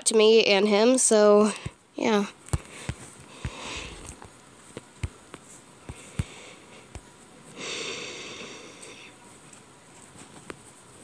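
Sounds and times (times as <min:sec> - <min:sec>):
taps on a touchscreen: 0:02.5 - 0:07.1
breath through the nose: 0:02.6 - 0:04.2, 0:05.9 - 0:06.9.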